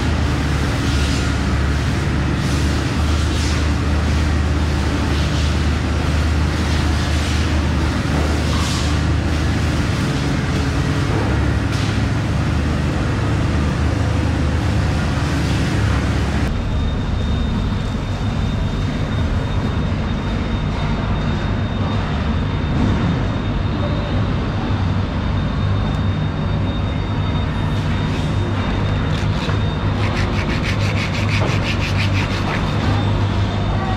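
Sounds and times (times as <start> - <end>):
low mechanical drone: 0.0 - 33.9
faint high steady whine: 12.9 - 33.9.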